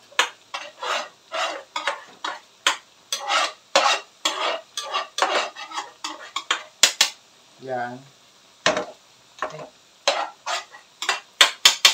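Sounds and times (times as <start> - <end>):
spatula scraping frying pan: 0.0 - 7.2, 10.0 - 11.9
bananas sizzling in oil: 0.0 - 11.9.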